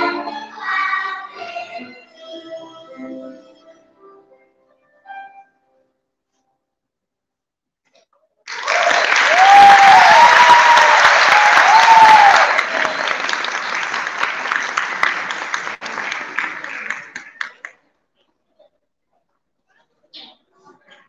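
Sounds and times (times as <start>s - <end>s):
people cheering: 8.5s - 17.5s
audience applauding: 8.5s - 17.8s.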